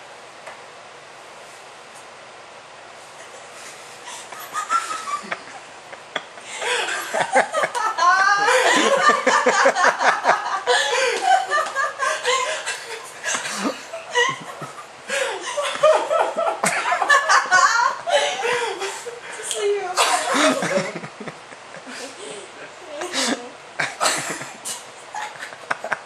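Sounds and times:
loud human laughter: 4.1s - 19.2s, 20.0s - 22.2s, 23.1s - 26.0s.

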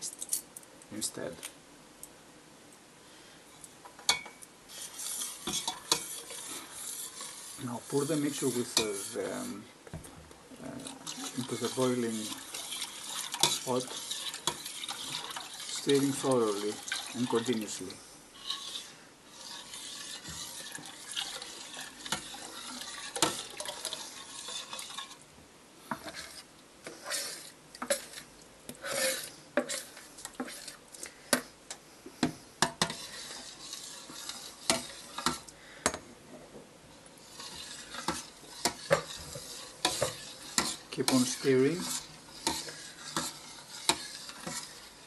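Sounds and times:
metal spoon clinking on pot: 4.0s - 4.4s
mixture bubbling: 4.1s - 25.3s, 25.9s - 31.6s, 32.6s - 35.8s, 37.0s - 45.0s.

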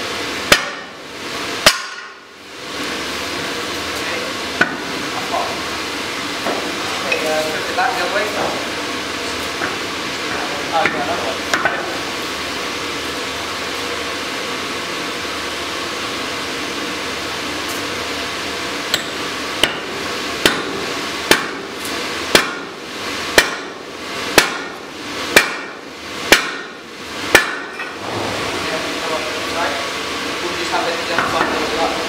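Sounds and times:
sledgehammer striking hot steel: 0.4s - 1.0s, 1.6s - 2.3s, 18.9s - 28.0s.

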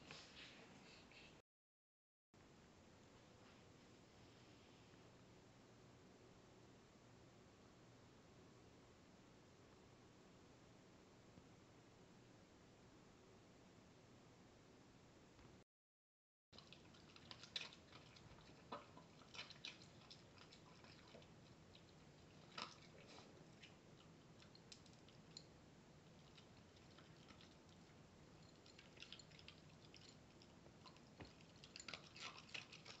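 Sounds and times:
dog crunching dry kibble: 26.1s - 33.0s.

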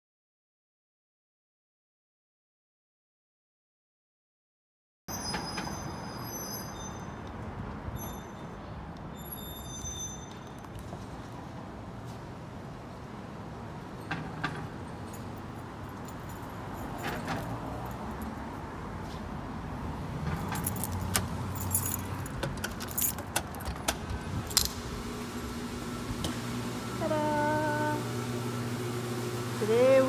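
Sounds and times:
low rumble of street traffic: 5.1s - 30.0s
keys jangling: 14.8s - 18.5s, 20.3s - 24.8s.

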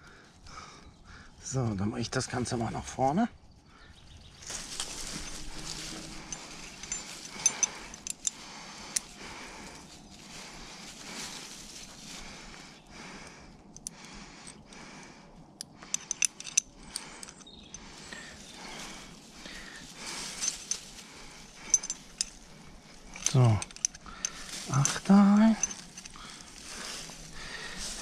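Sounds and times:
rope rustling against leaves: 4.0s - 13.7s, 17.7s - 28.0s
carabiner metallic clicks: 4.7s - 9.9s, 15.6s - 17.9s, 18.7s - 27.3s.

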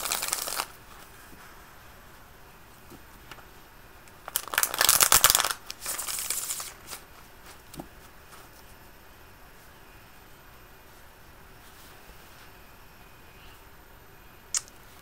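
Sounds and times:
cards being shuffled: 0.0s - 0.8s.

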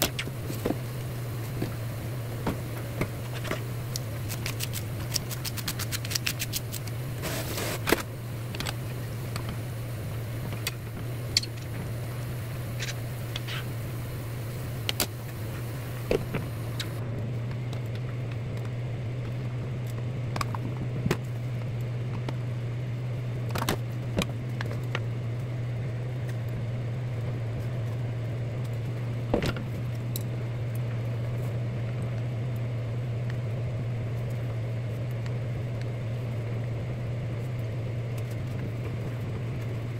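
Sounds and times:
low hum: 0.0s - 39.9s
scissors snipping green onions: 3.3s - 8.0s.

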